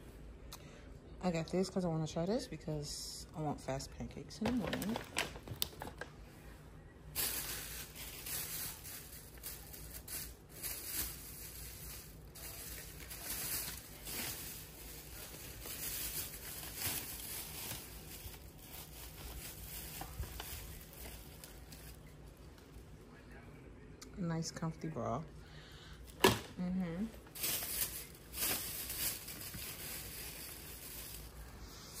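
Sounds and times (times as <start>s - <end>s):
bags and packaging rustling: 4.3s - 6.1s, 7.1s - 22.9s, 27.2s - 31.6s.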